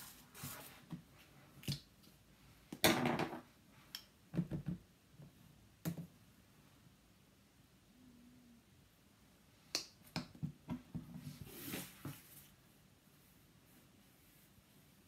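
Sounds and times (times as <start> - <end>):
rustling scrape: 0.0 - 0.9, 11.2 - 12.6.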